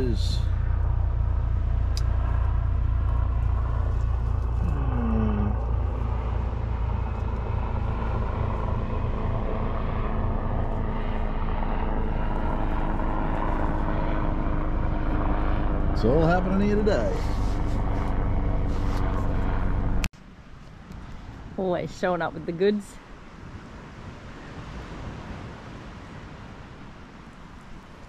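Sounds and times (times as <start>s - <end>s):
helicopters flying over: 0.0s - 20.1s.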